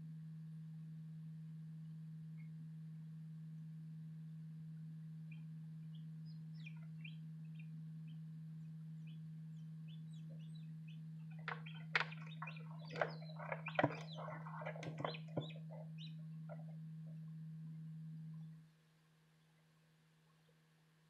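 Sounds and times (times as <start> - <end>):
incubator fan humming: 5.3 - 18.9
chicks peeping: 5.9 - 7.7, 9.0 - 17.2.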